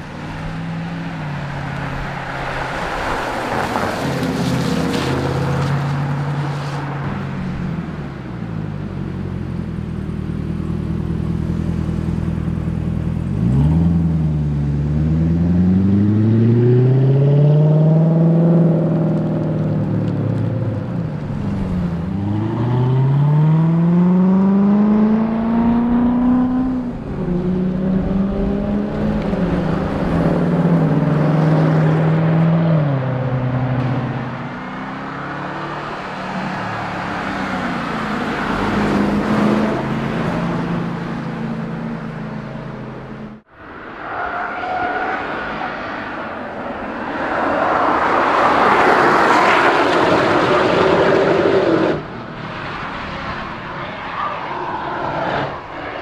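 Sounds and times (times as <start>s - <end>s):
car engine accelerating hard: 10.6s - 44.0s.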